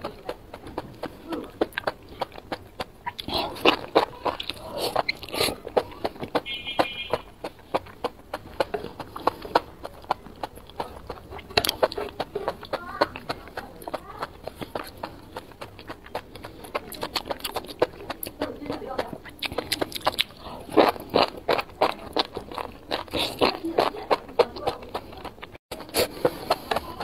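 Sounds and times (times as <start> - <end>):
wet chewing mouth clicks: 0.0 - 27.0
slurping noodles: 3.0 - 6.4, 25.7 - 27.0.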